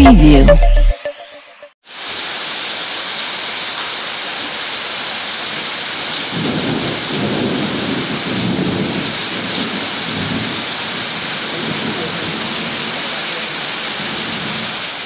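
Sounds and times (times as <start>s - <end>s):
torrential rain: 1.8s - 15.0s
low rumble of thunder: 6.3s - 12.8s.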